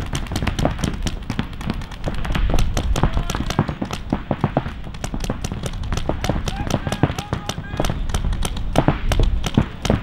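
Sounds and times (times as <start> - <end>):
paintball markers firing: 0.0 - 10.0.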